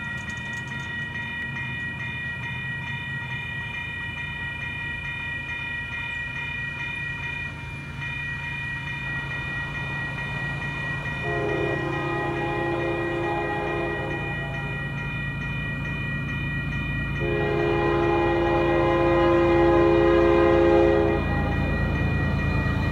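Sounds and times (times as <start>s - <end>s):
crossing bell ringing: 0.0s - 22.9s
diesel locomotive drone: 0.0s - 22.9s
locomotive horn: 11.2s - 14.8s, 17.2s - 21.8s.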